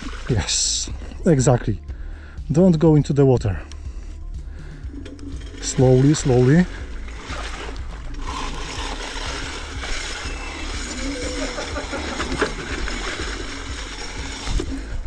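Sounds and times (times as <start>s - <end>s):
scooter tyres splashing through water: 5.4s - 15.0s.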